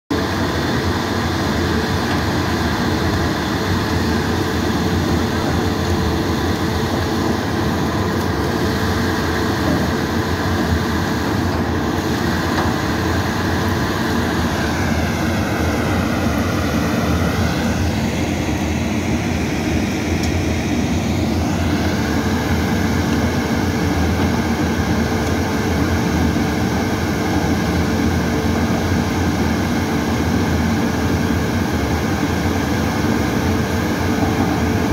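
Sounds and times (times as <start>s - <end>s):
shredder running loudly: 0.1s - 34.9s.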